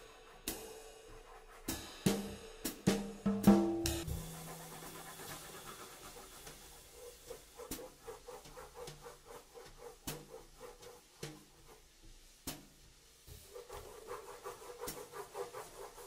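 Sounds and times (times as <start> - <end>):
crayon scratching on paper: 1.1 - 1.7, 4.1 - 11.8, 13.5 - 16.0.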